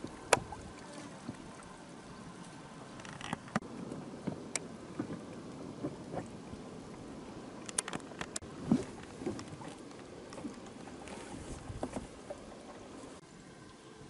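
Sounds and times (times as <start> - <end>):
water lapping around boat: 0.0 - 14.0
sharp clicks and ticks: 7.6 - 8.4.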